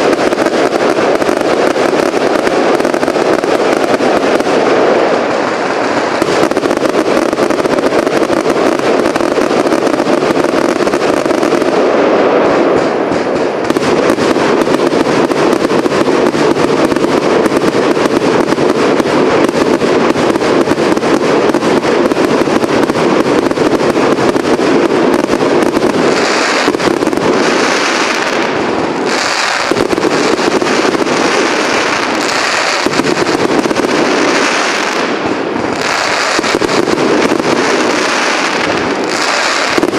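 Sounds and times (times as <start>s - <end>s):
fireworks barrage popping: 0.0s - 39.9s
fireworks crackle: 0.0s - 39.9s.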